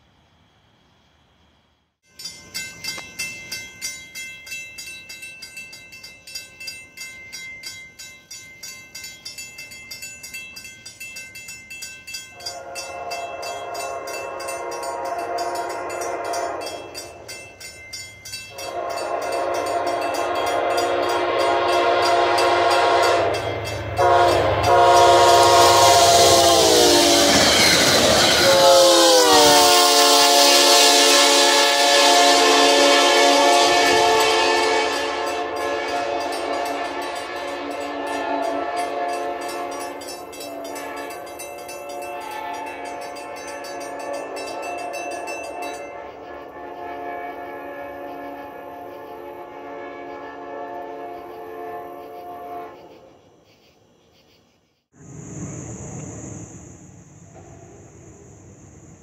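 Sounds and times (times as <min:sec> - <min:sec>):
crossing warning bell ringing: 0:02.0 - 0:52.0
train wheel noise: 0:02.1 - 0:53.1, 0:55.0 - 0:59.0
train horn blasts: 0:12.4 - 0:17.3, 0:18.5 - 0:53.0.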